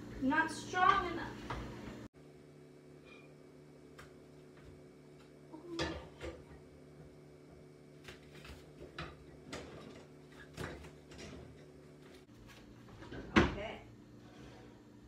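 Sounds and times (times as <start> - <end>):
kitchen things knocking and clattering: 8.3 - 11.7.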